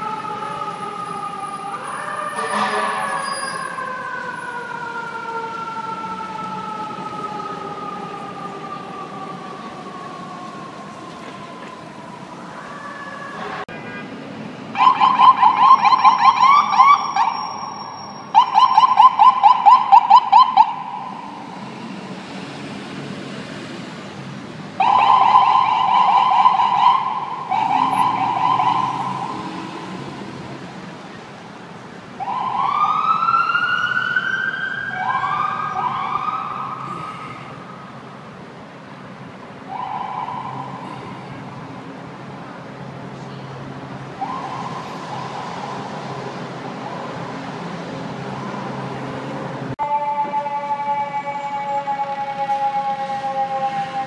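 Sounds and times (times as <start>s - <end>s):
electronic sirens: 0.0s - 13.7s, 14.8s - 22.1s, 24.8s - 30.6s, 32.2s - 38.1s, 39.6s - 41.6s, 44.0s - 47.3s, 49.7s - 54.0s
city traffic: 0.0s - 54.0s.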